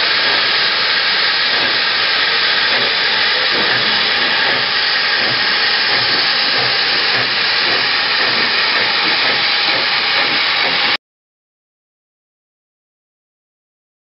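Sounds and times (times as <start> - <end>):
steam locomotive hissing steam: 0.0 - 11.0.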